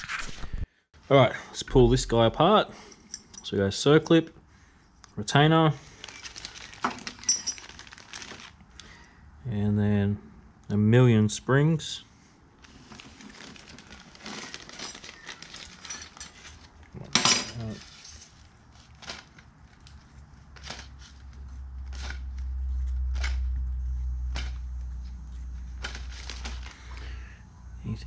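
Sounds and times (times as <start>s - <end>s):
low steady rumble: 1.6s - 2.4s, 21.0s - 28.0s.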